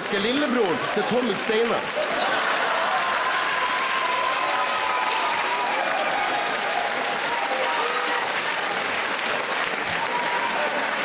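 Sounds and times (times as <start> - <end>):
audience applauding: 0.0 - 11.0
audience laughter: 1.9 - 3.0.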